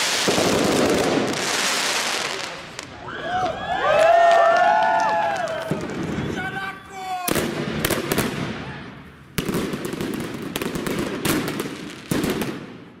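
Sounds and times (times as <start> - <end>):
fireworks banging: 0.0 - 3.0, 5.4 - 6.6, 7.2 - 13.0
fireworks hiss and crackle: 0.0 - 3.0.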